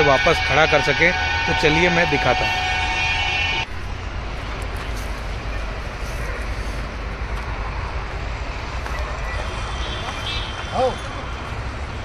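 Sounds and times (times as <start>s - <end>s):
low rumble with broad hiss: 3.6s - 9.9s.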